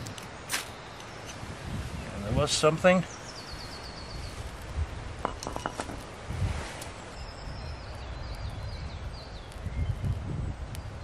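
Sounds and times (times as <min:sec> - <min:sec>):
small songbird singing: 0:00.0 - 0:04.5, 0:07.1 - 0:11.0.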